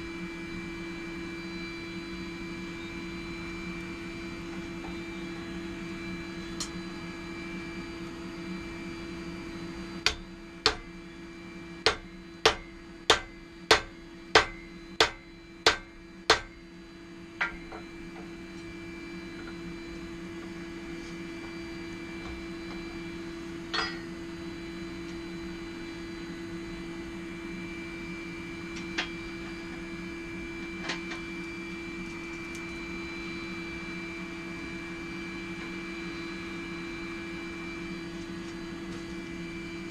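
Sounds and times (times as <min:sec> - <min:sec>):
forge hum: 0:00.0 - 0:39.9
hammer striking steel on anvil: 0:10.0 - 0:10.9, 0:11.9 - 0:16.5, 0:23.7 - 0:24.2.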